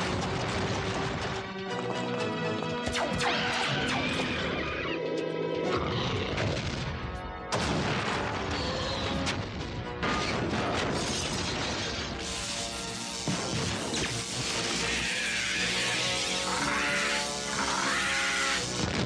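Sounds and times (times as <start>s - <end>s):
dramatic music: 0.0s - 19.0s
crashes and booms: 6.4s - 12.2s.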